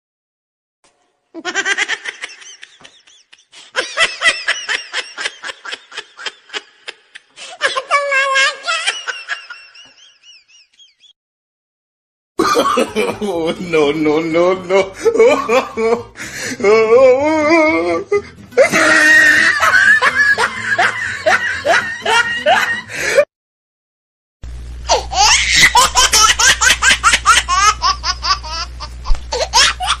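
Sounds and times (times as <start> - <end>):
cartoon character laughing: 1.4 - 11.1, 14.6 - 16.1, 17.2 - 23.0, 24.9 - 30.0
steady low hum: 24.5 - 30.0.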